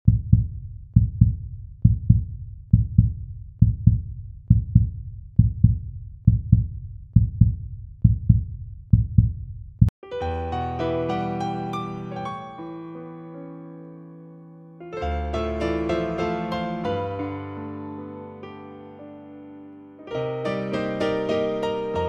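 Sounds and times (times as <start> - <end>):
heartbeat thumps: 0.1 - 9.9.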